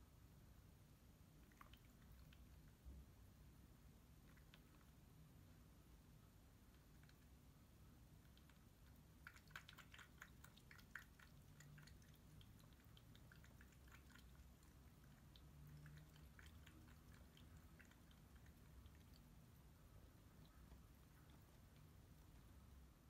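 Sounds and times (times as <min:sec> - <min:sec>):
cat lapping water: 0:01.4 - 0:02.8, 0:04.2 - 0:05.0, 0:08.1 - 0:22.8.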